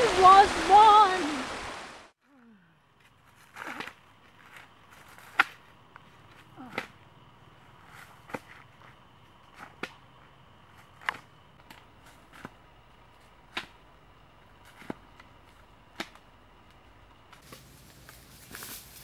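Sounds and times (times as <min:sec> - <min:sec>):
walking stick tapping on leaves: 0:14.6 - 0:19.0
footsteps on dry leaves: 0:17.4 - 0:19.0.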